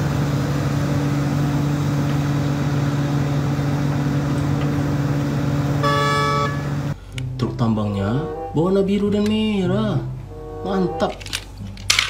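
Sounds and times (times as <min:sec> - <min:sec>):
excavator diesel engine running: 0:00.0 - 0:07.1
short horn blast: 0:05.8 - 0:07.0.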